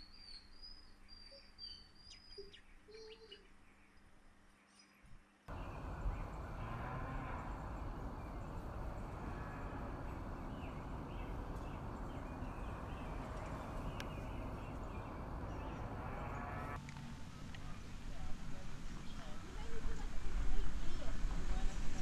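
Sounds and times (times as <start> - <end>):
outdoor ambient noise: 0.0 - 22.0
birds chirping: 5.5 - 16.8.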